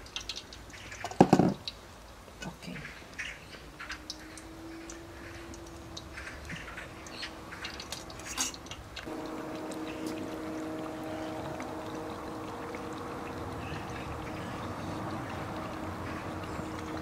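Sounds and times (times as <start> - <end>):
food frying in hot oil: 0.0 - 2.4, 3.1 - 17.0
oil dripping: 0.0 - 2.4, 3.0 - 17.0
low steady hum: 3.5 - 17.0.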